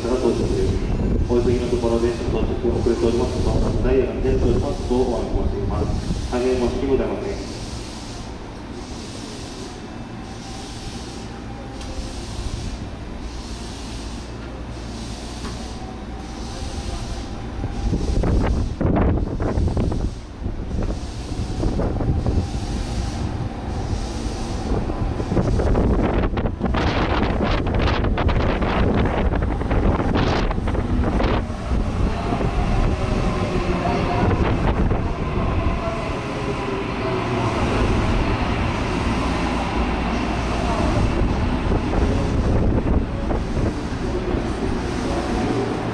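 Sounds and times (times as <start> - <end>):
wind buffeting microphone: 0.0 - 6.3, 17.2 - 45.9
electric train rumbling: 0.0 - 45.9
faint train whine: 0.0 - 45.9.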